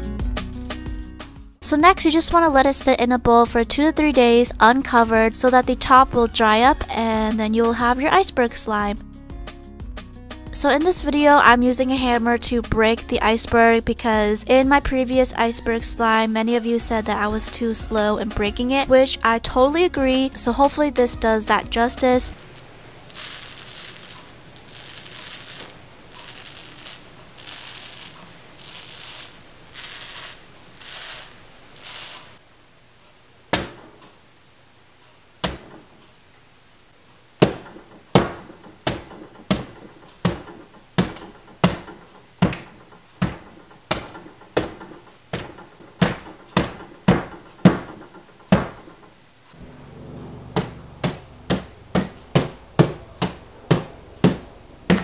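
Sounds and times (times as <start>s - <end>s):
hammer striking hardened crust: 37.4s - 49.1s, 50.4s - 55.0s.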